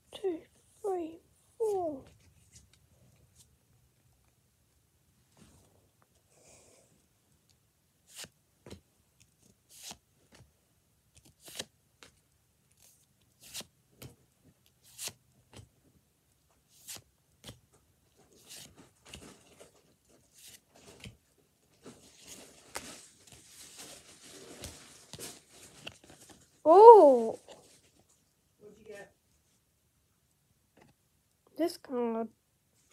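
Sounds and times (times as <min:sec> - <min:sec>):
trading cards shuffled by hand: 0:08.0 - 0:10.4, 0:11.2 - 0:12.2, 0:12.8 - 0:15.7, 0:16.7 - 0:17.6, 0:18.2 - 0:21.2, 0:21.8 - 0:26.6
cards rustling: 0:08.0 - 0:10.5, 0:11.2 - 0:15.6, 0:16.7 - 0:21.2, 0:21.8 - 0:26.7.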